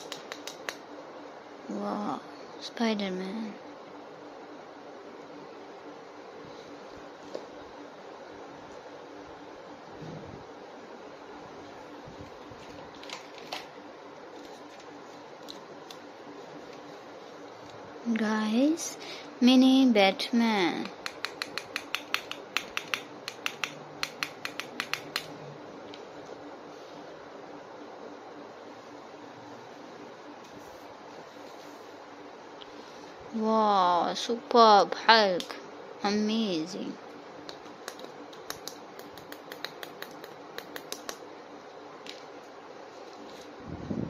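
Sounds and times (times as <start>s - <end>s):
sharp plastic clicks: 20.8s - 25.3s, 37.5s - 41.2s.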